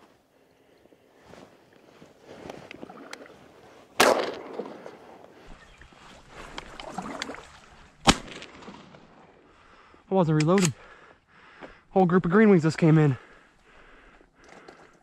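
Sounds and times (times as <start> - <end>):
gun and clothing handling: 1.2 - 9.0
shotgun shot: 4.0 - 4.9, 8.0 - 9.0.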